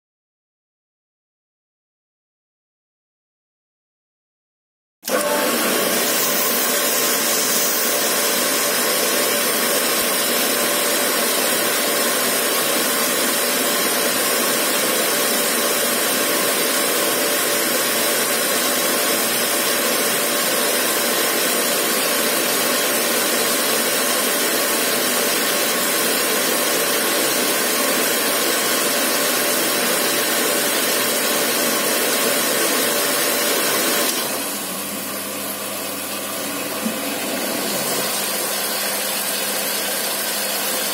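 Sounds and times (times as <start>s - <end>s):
pump running: 5.0s - 40.9s
water spraying from nozzles: 5.1s - 11.2s.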